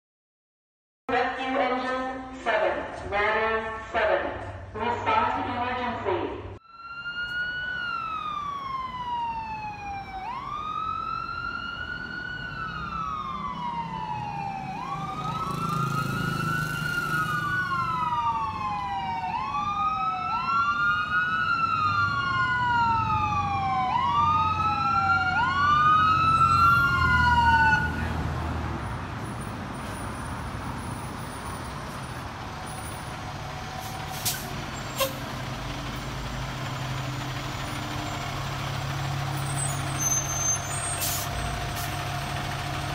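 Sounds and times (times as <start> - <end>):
fire engine siren wailing: 6.6 - 42.9
truck engine running: 29.7 - 42.9.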